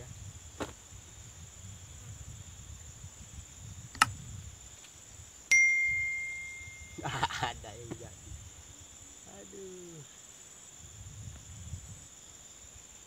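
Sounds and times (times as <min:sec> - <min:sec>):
high insect drone: 0:00.0 - 0:13.0
bright bell ding: 0:05.5 - 0:07.0
faint outdoor rumble: 0:06.6 - 0:12.2.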